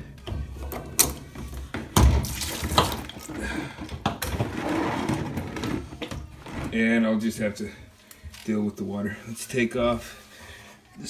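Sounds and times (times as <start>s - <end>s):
plastic hoses clicking and knocking: 0.2s - 6.7s.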